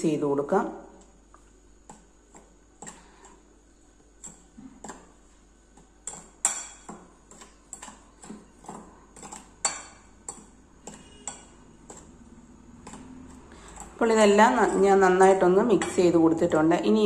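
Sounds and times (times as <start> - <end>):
spoon clinking and scraping in bowl: 6.0 - 14.8.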